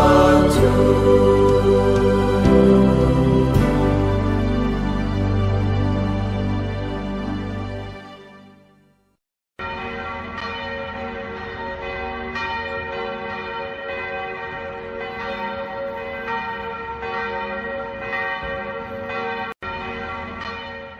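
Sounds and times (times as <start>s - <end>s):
church bells ringing: 0.0s - 7.7s, 9.6s - 20.9s.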